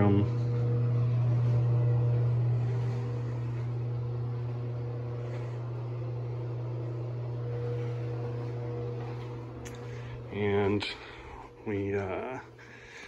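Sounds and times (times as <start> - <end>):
fan motor humming: 0.0 - 13.0.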